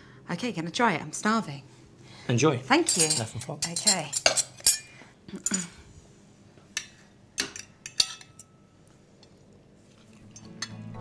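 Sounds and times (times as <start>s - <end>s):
cutlery clinking on plate: 6.8s - 8.6s.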